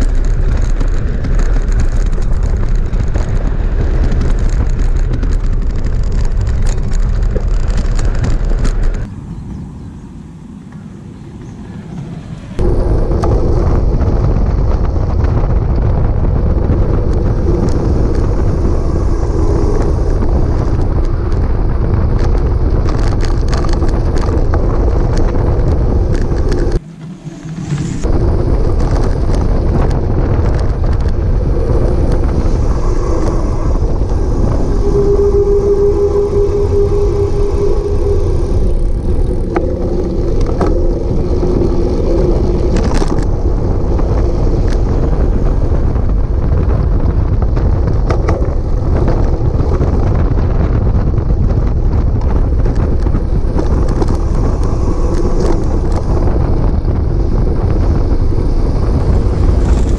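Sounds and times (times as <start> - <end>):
tyre and road rumble: 0.0 - 59.9
wind buffeting microphone: 0.0 - 59.9
steady hum: 24.4 - 59.9.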